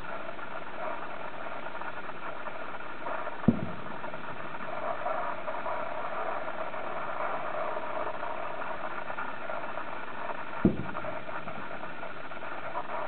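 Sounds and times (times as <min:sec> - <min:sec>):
car engine idling: 0:01.4 - 0:07.2
distant firework boom: 0:03.2 - 0:08.1, 0:10.5 - 0:13.0.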